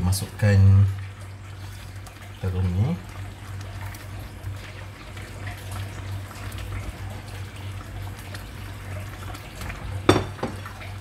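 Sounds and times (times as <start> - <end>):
liquid splashing and trickling: 0.0 - 11.0.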